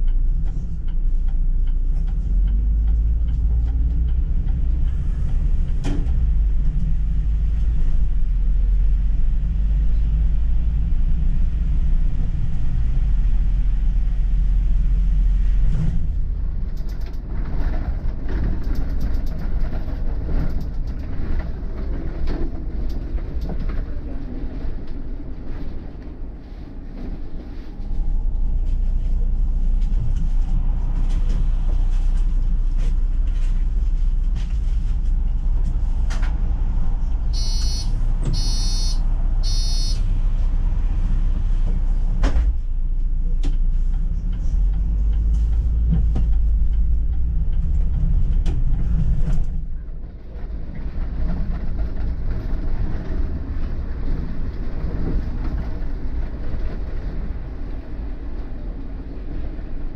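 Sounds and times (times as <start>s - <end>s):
bus engine and road rumble: 0.0s - 59.9s
door warning beeps: 37.4s - 40.0s.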